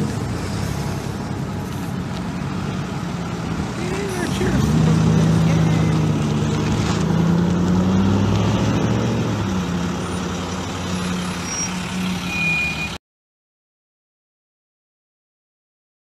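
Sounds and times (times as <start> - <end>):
large vehicle engine passing: 0.0 - 12.4
street traffic: 0.0 - 13.0.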